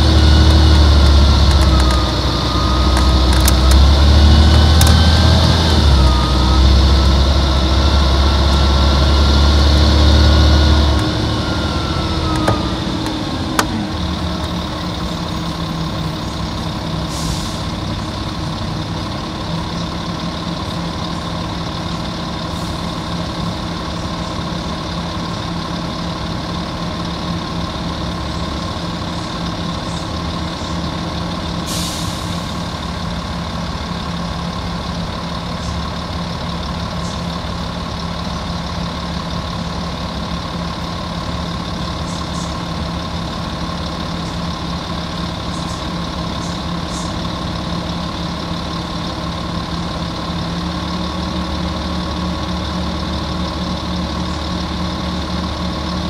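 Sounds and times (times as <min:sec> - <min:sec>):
diesel bus engine idling: 0:00.0 - 0:56.0.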